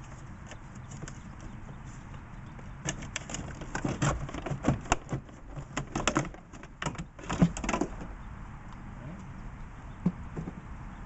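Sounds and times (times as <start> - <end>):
plastic knocks and rattles: 2.8 - 8.1.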